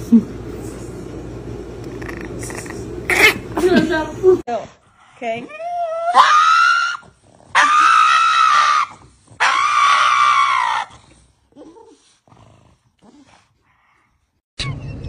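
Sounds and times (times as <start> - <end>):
dog screaming: 3.1 - 3.5, 5.8 - 11.0.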